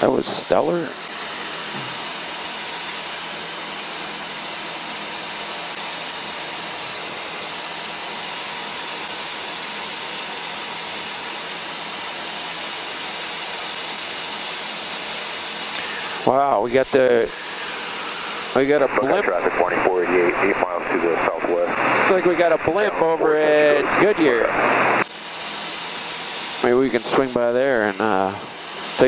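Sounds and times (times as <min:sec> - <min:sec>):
light aircraft cockpit noise: 0:00.0 - 0:29.0
faint steady hum: 0:15.7 - 0:29.0.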